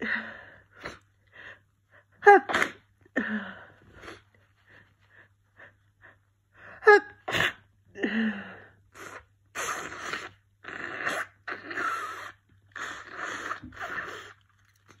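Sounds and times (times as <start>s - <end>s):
person sneezing: 2.2s - 2.9s.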